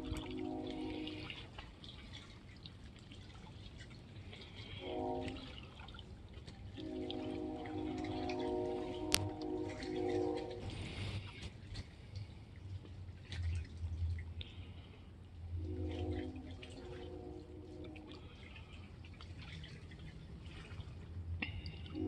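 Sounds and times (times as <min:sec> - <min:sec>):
distant train horn: 0:00.0 - 0:01.7, 0:04.4 - 0:06.0, 0:06.6 - 0:11.4, 0:15.3 - 0:18.9, 0:21.4 - 0:22.0
drips and splashes: 0:00.0 - 0:22.0
water lapping and trickling: 0:00.0 - 0:22.0.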